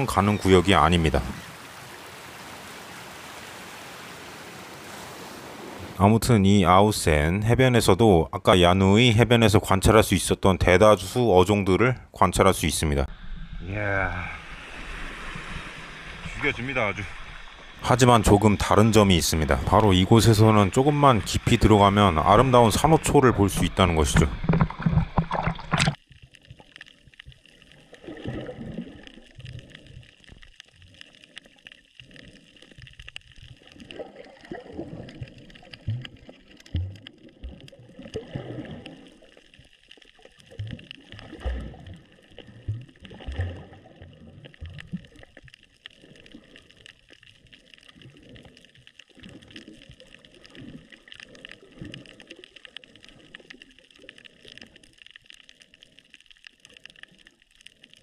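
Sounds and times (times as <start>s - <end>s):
underwater water gurgling: 0.0s - 6.0s, 12.1s - 58.0s
faint hiss: 13.0s - 24.2s.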